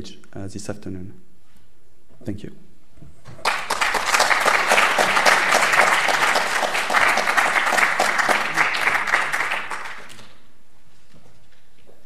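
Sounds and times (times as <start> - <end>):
audience applauding: 3.3 - 10.5.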